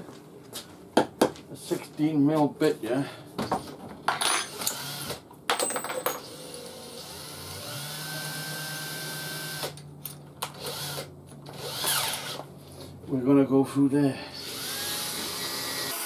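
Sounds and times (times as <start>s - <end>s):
drill motor spinning: 4.6s - 5.2s, 6.2s - 9.8s, 10.5s - 12.4s, 14.4s - 16.0s.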